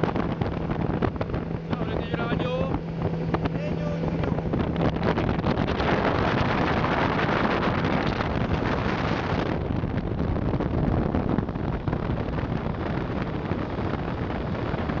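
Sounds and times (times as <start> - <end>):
rushing water: 0.0 - 15.0
speedboat engine drone: 0.0 - 15.0
wind buffeting microphone: 0.0 - 15.0.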